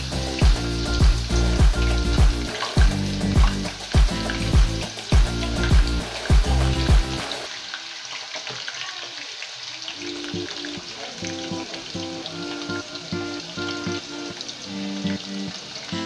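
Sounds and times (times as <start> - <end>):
music with heavy beat: 0.0 - 7.5
oil sizzling and crackling: 0.0 - 16.0.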